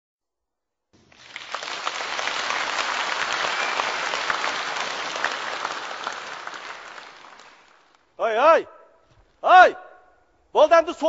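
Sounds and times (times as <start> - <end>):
audience applauding: 1.0 - 8.1.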